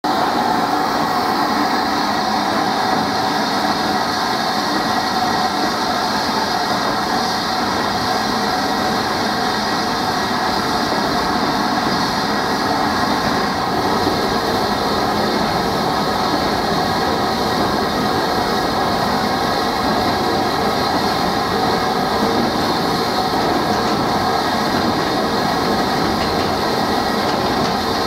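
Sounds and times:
steam engine hissing: 0.1s - 28.0s
wagons rolling on rails: 2.5s - 28.0s.

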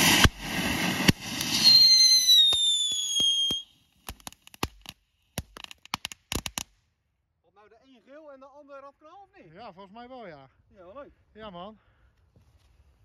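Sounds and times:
fireworks hissing sparks: 0.0s - 6.6s
sharp crackles: 0.0s - 6.8s
falling whistle: 1.5s - 3.7s.

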